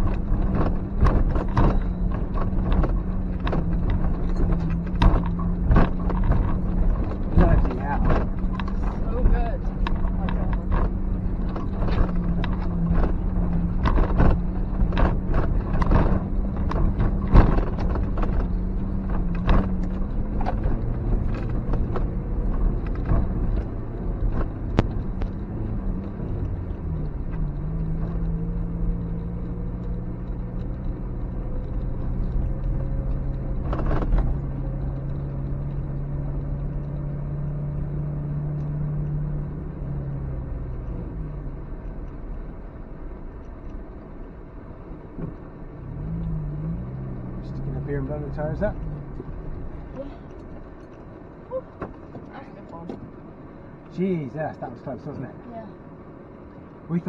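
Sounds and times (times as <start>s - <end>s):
car jolting over bumps: 0.0s - 44.0s
car engine running: 0.0s - 57.0s.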